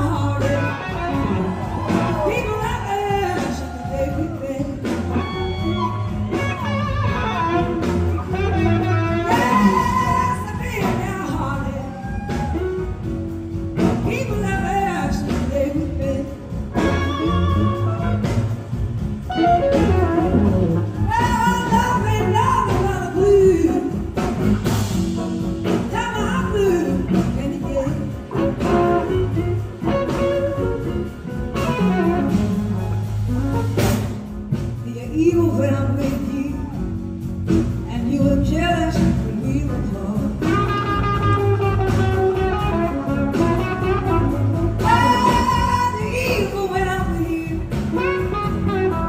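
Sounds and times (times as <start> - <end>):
bending electric guitar lead: 0.0 - 34.9
blues-rock band playing: 0.0 - 49.0.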